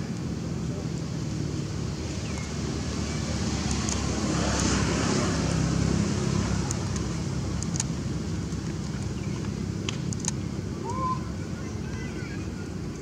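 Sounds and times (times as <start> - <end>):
passing vehicle rumble: 0.0 - 13.0.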